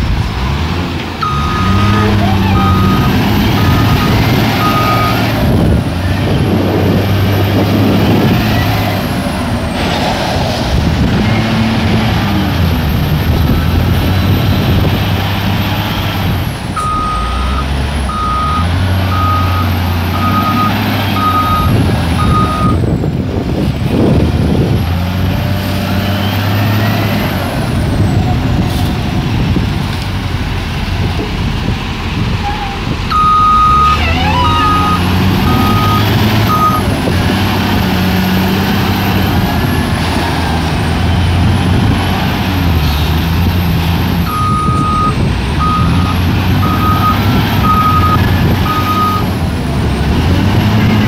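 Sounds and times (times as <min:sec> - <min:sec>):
diesel engine revving: 0:00.0 - 0:51.0
reversing alarm beeps: 0:01.2 - 0:05.3, 0:16.8 - 0:22.8, 0:33.1 - 0:36.9, 0:44.3 - 0:49.2.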